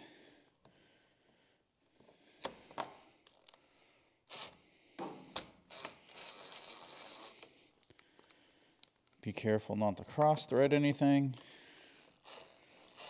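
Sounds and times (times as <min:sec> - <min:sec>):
small metal screws clicking: 0:03.2 - 0:03.7, 0:05.4 - 0:09.2, 0:11.3 - 0:13.0.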